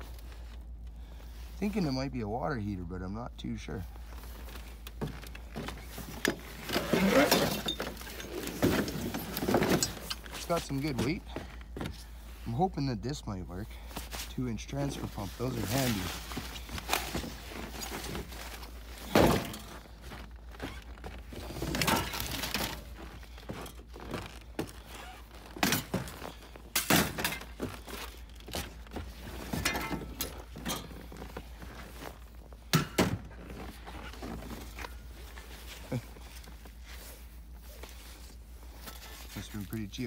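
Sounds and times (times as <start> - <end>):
scrap metal thunks and knocks: 5.0 - 12.0, 15.7 - 20.2, 25.5 - 31.8, 32.6 - 33.6.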